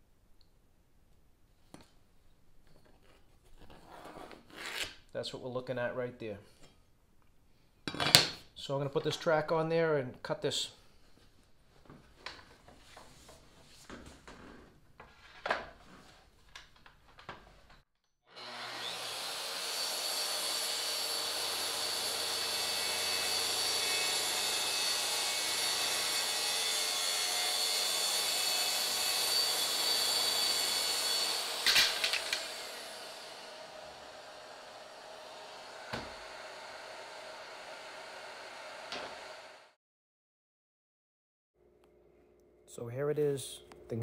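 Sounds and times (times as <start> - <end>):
circular saw cutting plywood: 18.3 - 39.8
saw handling clicks and knocks: 31.6 - 32.5.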